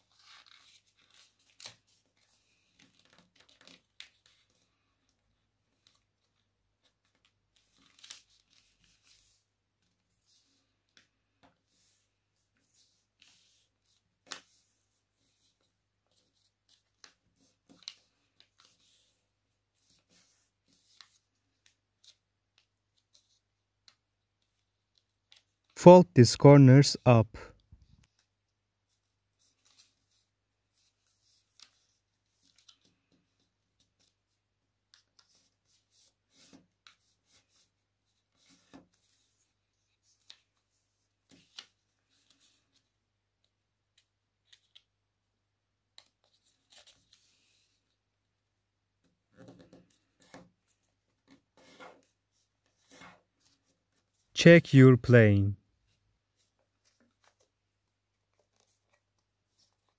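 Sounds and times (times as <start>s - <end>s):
paper rustling and crinkling: 0.0s - 11.0s, 46.0s - 48.0s, 55.9s - 59.9s.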